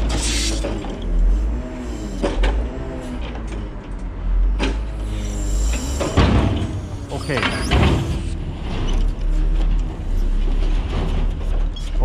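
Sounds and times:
truck engine and hydraulics: 0.0s - 12.0s.

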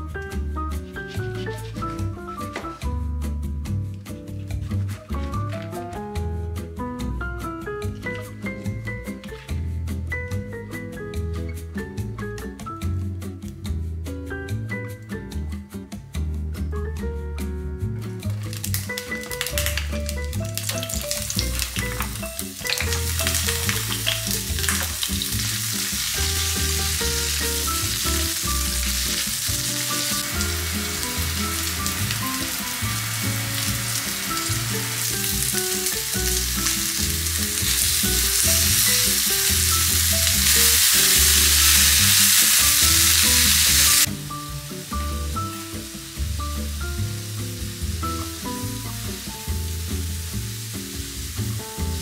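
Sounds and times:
soft background music with bass: 0.0s - 52.0s
vegetables sizzling in hot oil: 18.3s - 52.0s.

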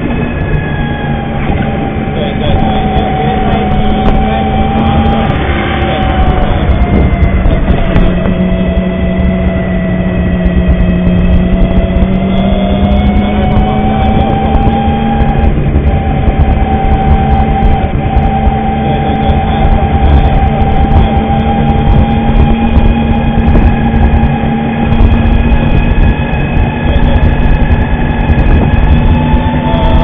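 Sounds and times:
motor scooter droning whine: 0.0s - 30.0s
wind and road noise rumble: 0.0s - 30.0s.

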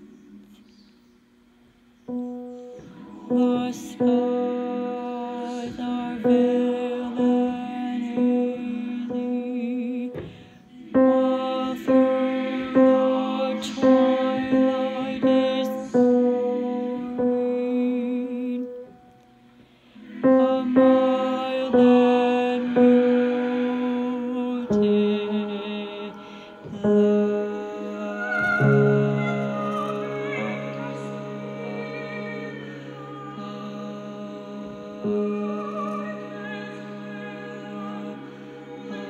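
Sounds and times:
tenor voice singing: 2.1s - 19.2s, 19.9s - 39.0s.

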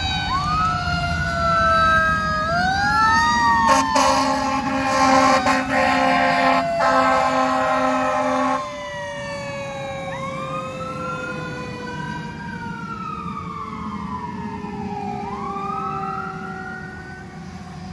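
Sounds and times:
low siren tone winding down: 0.0s - 17.9s
wail siren rising and falling: 0.0s - 17.9s
fire engine air horn blaring: 3.5s - 9.2s.

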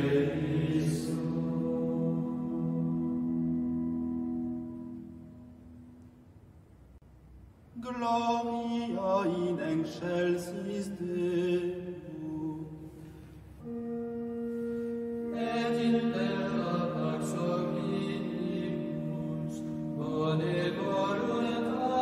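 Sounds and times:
low voices chanting: 0.0s - 4.0s
steady drone note: 0.0s - 7.0s.

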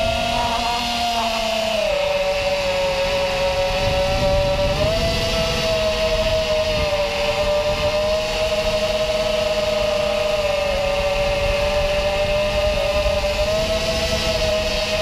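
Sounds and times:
drone motors whining: 0.0s - 15.0s
wind rumble: 0.0s - 15.0s.

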